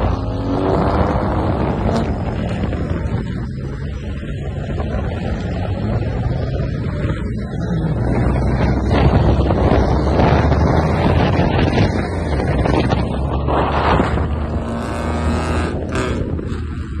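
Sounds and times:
cars driving at highway speed: 0.0s - 17.0s
wind buffeting microphone: 0.0s - 17.0s.

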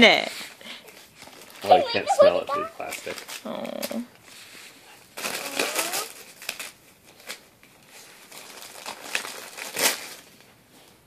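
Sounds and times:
plastic gift wrap crinkling: 0.4s - 11.0s.

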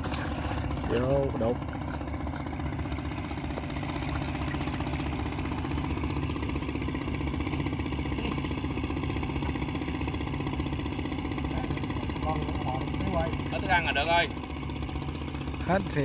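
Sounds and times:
small engine chugging: 0.0s - 16.0s.

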